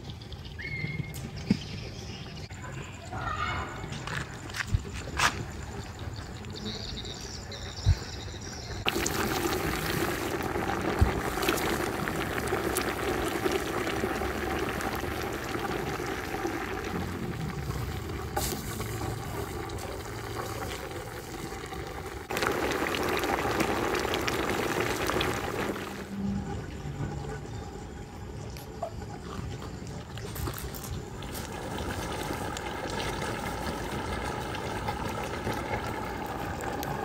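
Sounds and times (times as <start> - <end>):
syrup bubbling in pot: 8.6 - 26.6, 29.8 - 37.0
wood fire crackling: 8.8 - 26.2, 30.2 - 37.0.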